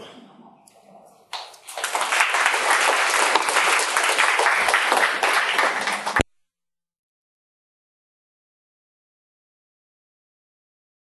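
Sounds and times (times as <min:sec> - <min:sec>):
audience applauding: 0:01.3 - 0:06.3.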